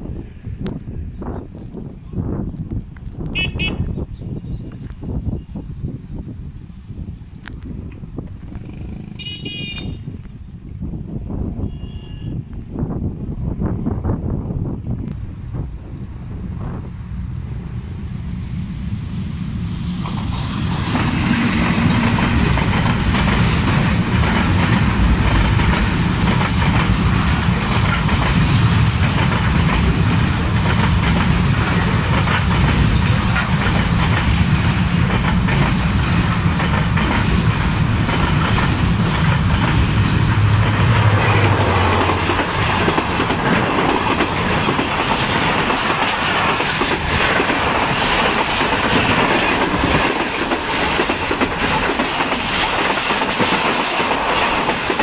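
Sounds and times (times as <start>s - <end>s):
train wheels clattering over rail joints: 19.8s - 55.0s.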